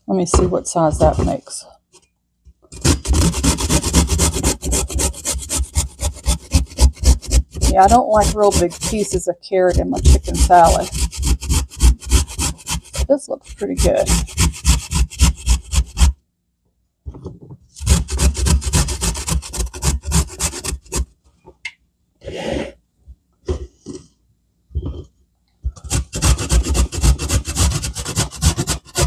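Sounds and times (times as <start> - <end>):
carrot shredded on metal grater: 2.8 - 16.1, 17.8 - 21.0, 25.8 - 29.0.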